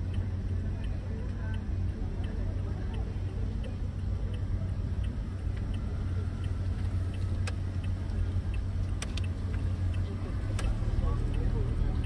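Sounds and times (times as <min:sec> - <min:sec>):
car engine rumble: 0:00.0 - 0:12.0
faint regular ticking: 0:00.0 - 0:12.0
road noise: 0:00.0 - 0:12.0
sharp clicks: 0:04.3 - 0:12.0.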